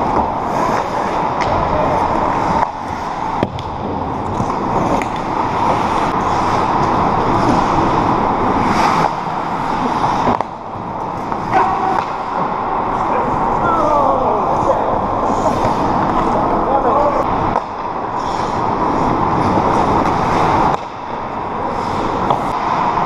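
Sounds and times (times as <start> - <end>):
skates scraping on ice: 0.0 - 3.4, 4.2 - 23.0
hockey sticks and puck clacking: 0.0 - 16.4, 17.4 - 23.0
steady noisy background: 0.0 - 23.0.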